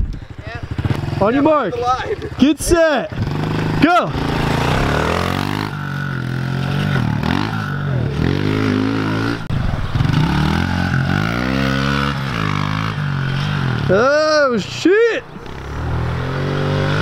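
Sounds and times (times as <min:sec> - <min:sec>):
small motorbike engine revving: 0:03.1 - 0:14.0, 0:15.4 - 0:17.0.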